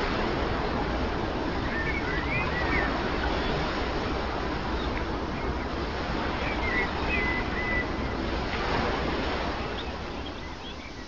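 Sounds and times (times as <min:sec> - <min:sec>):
sea waves washing on shore: 0:00.0 - 0:11.0
high bird calls: 0:06.4 - 0:08.2.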